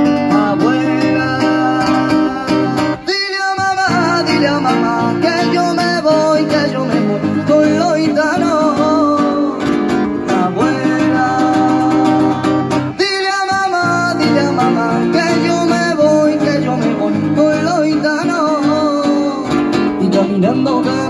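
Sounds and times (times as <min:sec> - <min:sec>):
acoustic guitar strumming: 0:00.0 - 0:21.0.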